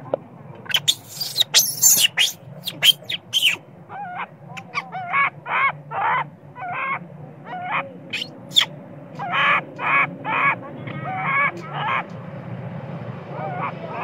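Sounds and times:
sharp high squeaks: 0.7s - 3.6s
baby monkey crying: 0.7s - 12.0s.

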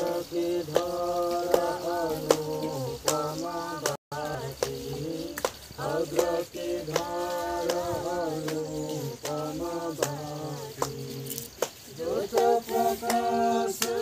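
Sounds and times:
sharp rhythmic clicks: 0.0s - 14.0s
voices singing a slow chant: 0.0s - 14.0s.

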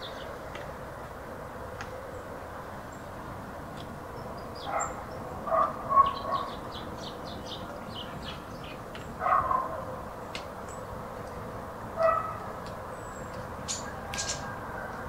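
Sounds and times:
small birds chirping: 0.0s - 0.6s, 1.8s - 15.0s
distant dog barking: 4.6s - 6.6s, 9.2s - 10.1s, 11.9s - 12.6s.

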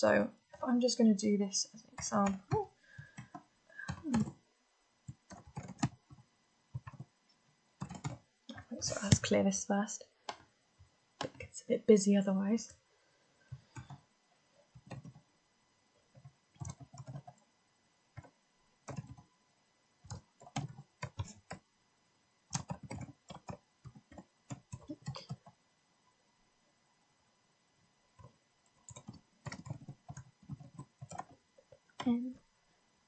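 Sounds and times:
typing on computer keyboard: 2.0s - 4.4s, 5.1s - 6.2s, 6.8s - 7.1s, 7.8s - 8.2s, 13.6s - 14.0s, 14.7s - 15.2s, 16.1s - 17.4s, 18.2s - 19.3s, 20.0s - 21.6s, 22.5s - 25.6s, 28.2s - 32.2s.

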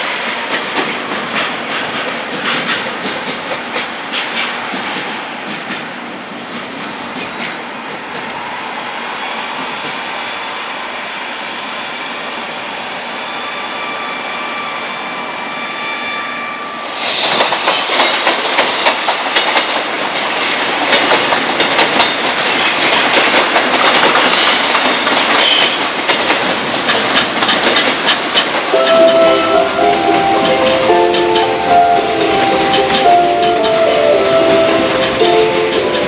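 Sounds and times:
wheels clacking over rail joints: 0.0s - 8.4s, 17.1s - 36.0s
freight train rumbling past: 0.0s - 36.0s
faint high squealing: 13.2s - 17.0s.

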